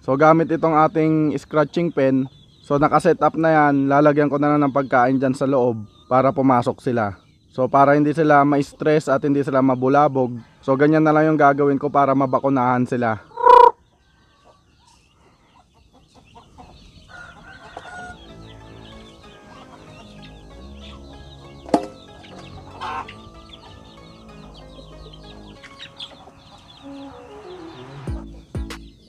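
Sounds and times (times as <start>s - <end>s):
chickens clucking: 0.0s - 29.0s
chicks peeping: 0.0s - 29.0s
soft background music: 17.2s - 29.0s
sharp knock: 21.7s - 22.0s.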